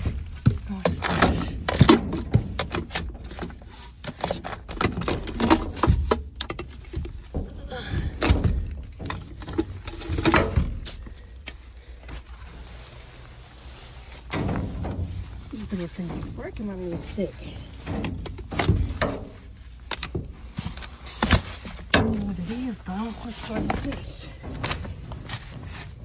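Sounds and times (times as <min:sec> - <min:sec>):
plastic bags rustling and crinkling: 0:00.0 - 0:26.0
knocks and clatter: 0:14.3 - 0:26.0.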